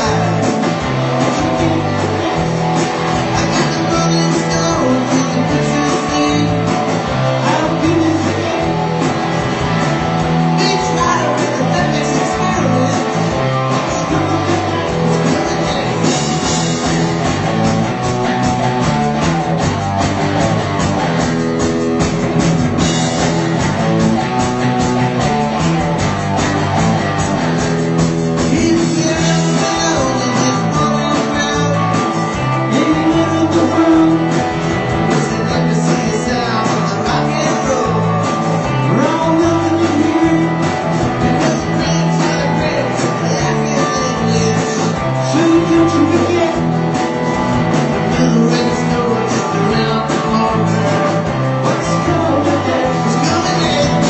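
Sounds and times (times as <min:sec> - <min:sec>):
person singing: 0:00.0 - 0:09.3, 0:10.3 - 0:16.5, 0:28.4 - 0:54.0
guitar music: 0:00.0 - 0:54.0.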